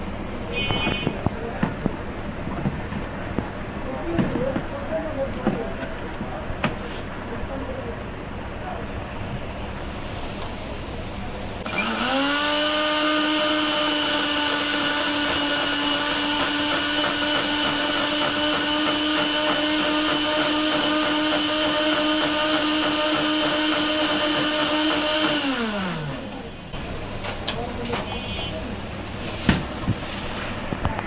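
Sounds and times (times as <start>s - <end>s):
blender motor running: 11.6s - 26.4s.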